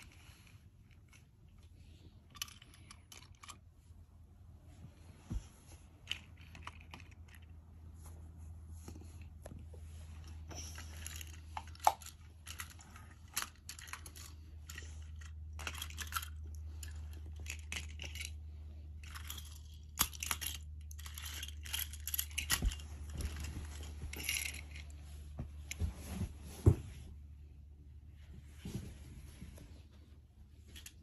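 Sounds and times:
toy trains clicking and clinking: 2.3s - 3.6s, 10.2s - 18.4s, 19.0s - 23.5s, 24.1s - 24.9s.

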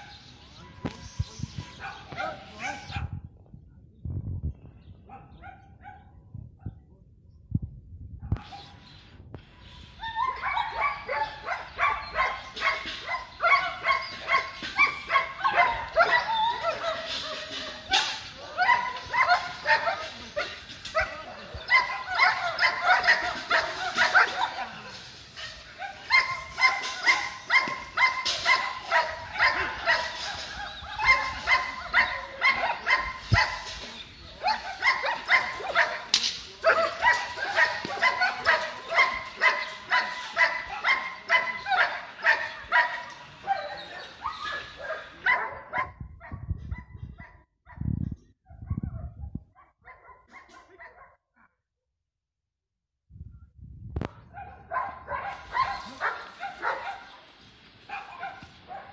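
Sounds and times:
dog barking rapidly: 10.4s - 17.0s, 21.7s - 25.0s, 34.4s - 47.8s, 54.1s - 57.2s.

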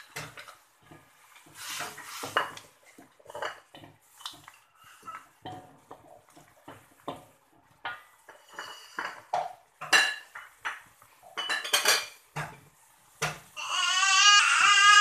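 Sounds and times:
wooden spatula scraping metal wok: 0.2s - 5.4s, 8.3s - 9.3s.

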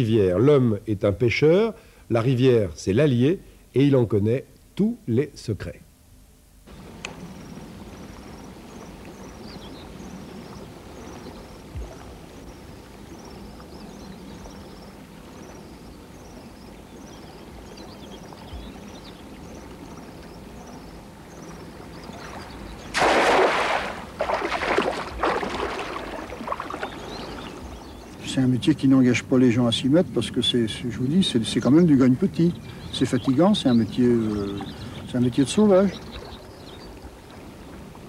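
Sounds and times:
legs wading through water: 6.7s - 28.3s, 30.7s - 38.0s
river rushing: 21.1s - 27.8s
cast net splashing into water: 22.9s - 27.6s.

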